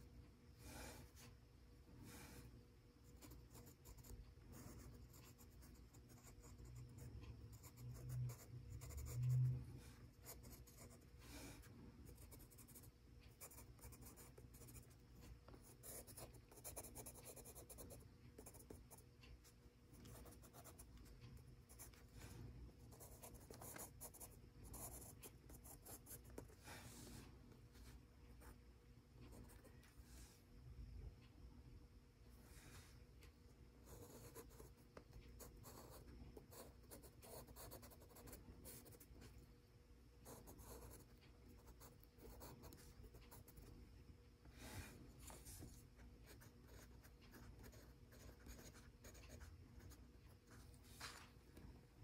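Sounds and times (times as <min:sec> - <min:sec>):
pencil scratching on paper: 0:03.0 - 0:19.0, 0:19.9 - 0:27.1, 0:33.9 - 0:34.7, 0:35.3 - 0:39.3, 0:40.2 - 0:43.7, 0:45.3 - 0:51.2.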